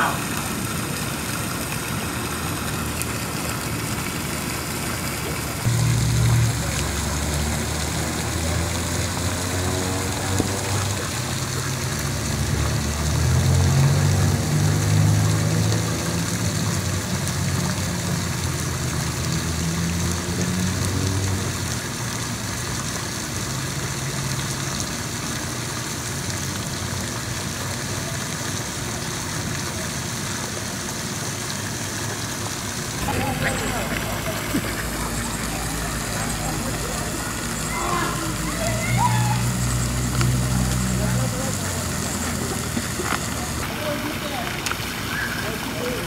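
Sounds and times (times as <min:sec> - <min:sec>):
low engine rumble: 0:32.6 - 0:46.0.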